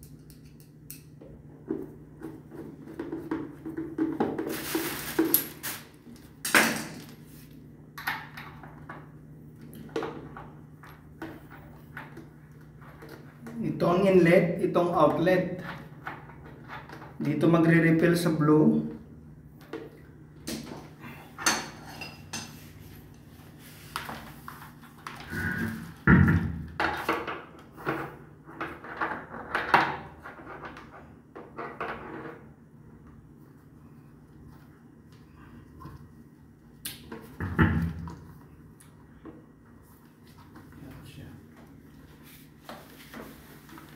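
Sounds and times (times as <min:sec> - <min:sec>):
steady low hum: 0:00.0 - 0:26.8.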